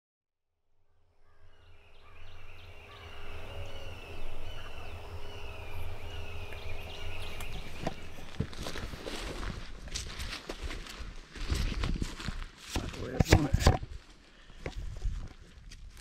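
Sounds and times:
bird calls: 0:01.2 - 0:09.4
steady low rumble: 0:01.4 - 0:10.4.

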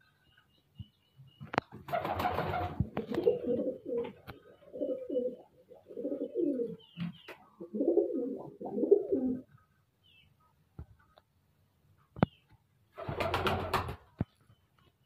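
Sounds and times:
pigeons cooing: 0:01.9 - 0:09.6.

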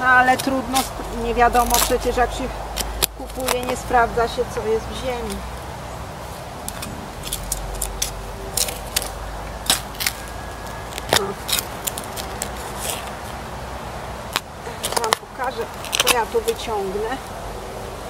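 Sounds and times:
digging in stony soil: 0:00.0 - 0:13.6, 0:14.2 - 0:17.2
clicks of digging hitting stones: 0:00.1 - 0:04.0, 0:06.6 - 0:13.4, 0:14.3 - 0:16.7.

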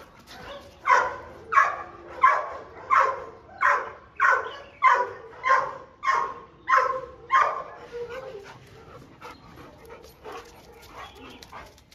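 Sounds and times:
dog barking: 0:00.4 - 0:07.8.

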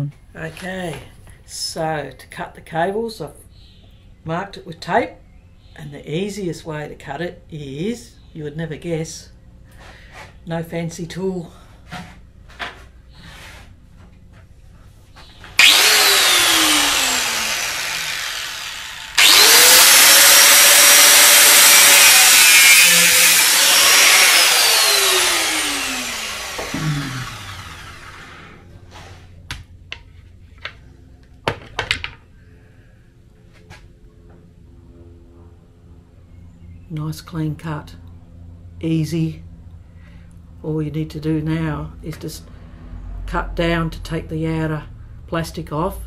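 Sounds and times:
angle grinder cutting cable: 0:15.6 - 0:28.7.

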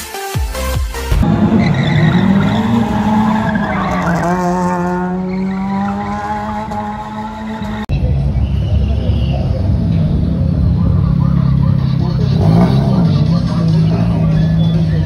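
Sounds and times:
electronic music: 0:00.0 - 0:07.9
tyres squealing: 0:01.2 - 0:07.8
car engine revving high: 0:01.2 - 0:07.9, 0:09.2 - 0:15.0.

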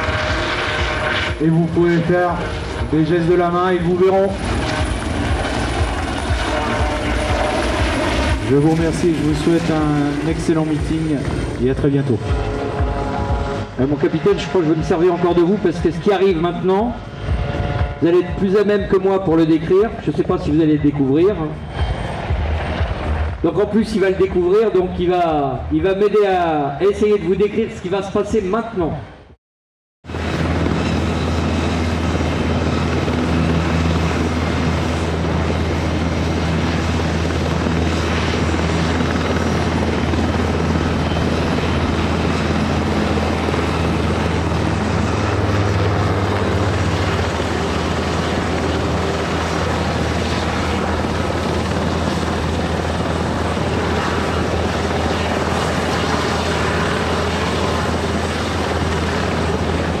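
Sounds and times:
helicopter engine and rotor: 0:00.0 - 0:27.6, 0:30.1 - 1:00.0.

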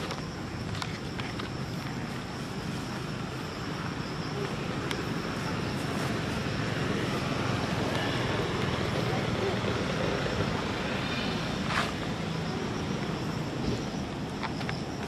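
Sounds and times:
high insect drone: 0:00.0 - 0:15.0.

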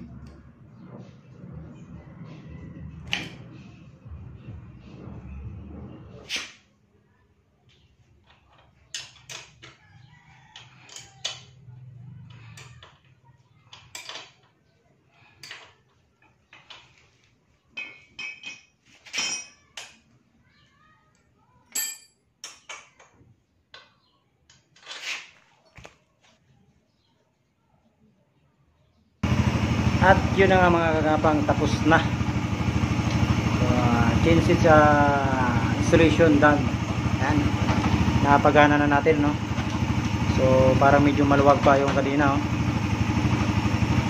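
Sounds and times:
wrench clinking on metal: 0:17.8 - 0:20.1, 0:21.7 - 0:23.1.

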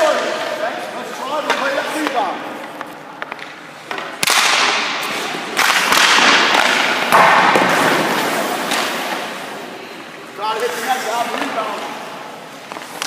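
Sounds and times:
skate blades scraping ice: 0:00.1 - 0:09.6, 0:10.2 - 0:13.0
hockey stick hitting puck: 0:01.2 - 0:09.4, 0:10.6 - 0:12.0, 0:12.6 - 0:13.0.

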